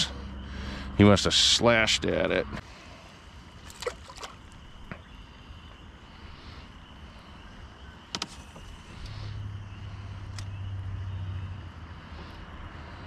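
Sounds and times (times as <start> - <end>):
water lapping against canoe: 3.6 - 5.2.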